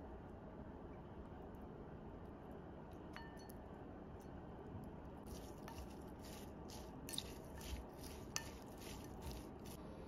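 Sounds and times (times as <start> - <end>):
wooden spoon tossing wet food: 5.2 - 9.8.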